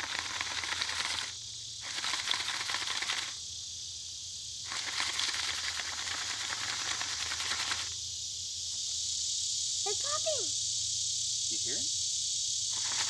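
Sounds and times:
high hiss: 0:00.0 - 0:13.0
popcorn pan rattling: 0:12.8 - 0:13.0.

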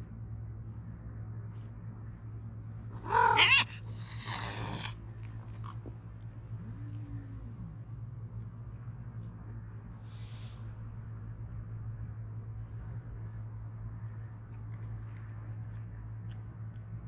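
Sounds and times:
cat hissing: 0:02.9 - 0:05.0
cat yowling: 0:03.0 - 0:04.9.

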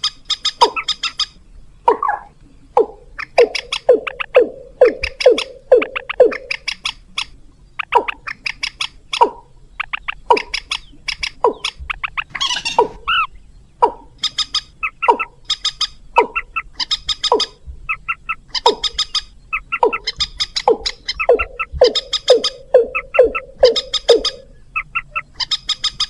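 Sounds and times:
harsh bird squawk: 0:00.0 - 0:01.3, 0:07.8 - 0:26.0
rail bird calls with clicking: 0:00.0 - 0:26.0.

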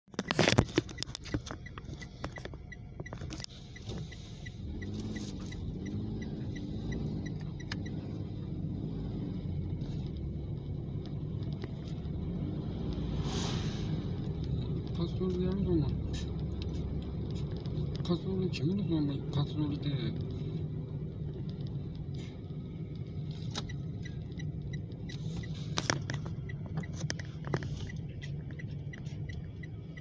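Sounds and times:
car road and engine noise: 0:00.0 - 0:30.0
light ticks: 0:00.2 - 0:08.5, 0:09.2 - 0:13.1, 0:14.1 - 0:30.0.

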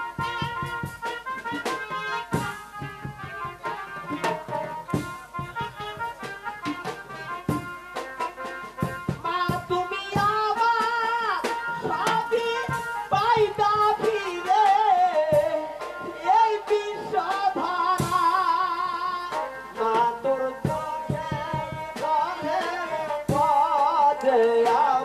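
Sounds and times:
held accompanying notes: 0:00.0 - 0:25.0
person singing into a microphone: 0:09.2 - 0:25.0.

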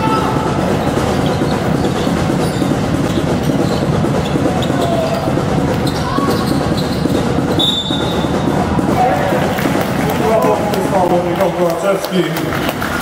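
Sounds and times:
basketball bouncing: 0:00.0 - 0:10.0
sneakers squeaking on court: 0:00.7 - 0:08.4
short high whistle: 0:07.6 - 0:08.2.

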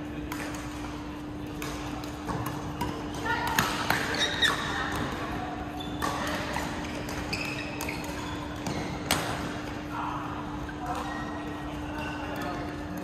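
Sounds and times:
rackets striking shuttlecock: 0:00.2 - 0:05.2, 0:05.8 - 0:09.8
sneakers squeaking on court floor: 0:00.7 - 0:09.9, 0:10.6 - 0:13.0.

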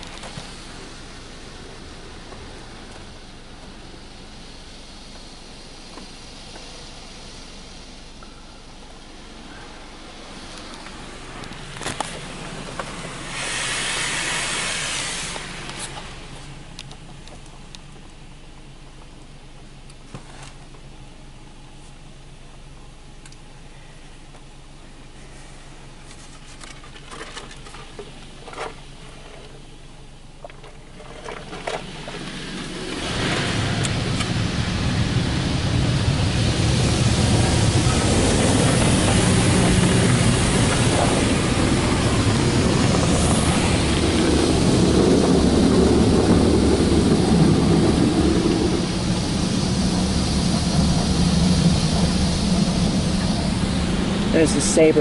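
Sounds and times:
water spray on car body: 0:00.0 - 0:08.2, 0:10.1 - 0:16.8, 0:31.4 - 0:55.0
low rumble: 0:00.0 - 0:19.9, 0:31.6 - 0:55.0.

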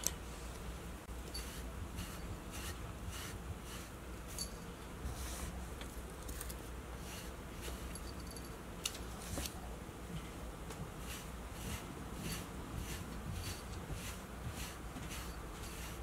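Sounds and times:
brush raking through cat fur: 0:01.0 - 0:08.2, 0:10.7 - 0:16.0.

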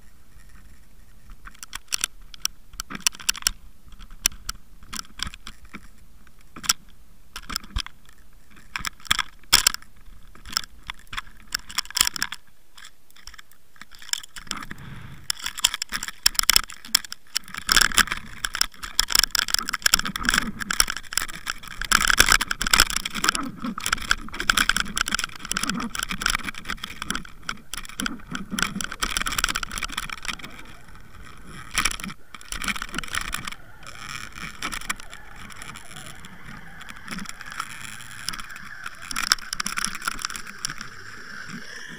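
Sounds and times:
camera rig clicking and rattling underwater: 0:00.0 - 0:41.9.

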